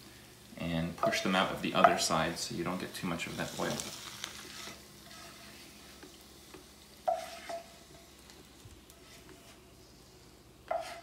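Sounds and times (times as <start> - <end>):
hot oil sizzling: 0.0 - 11.0
wooden spatula scraping a pan: 2.8 - 11.0.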